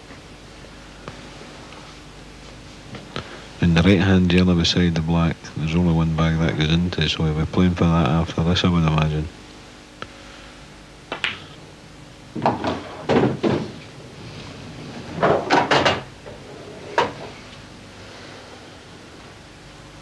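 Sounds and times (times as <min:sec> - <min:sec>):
pool balls clicking: 0:11.1 - 0:11.5.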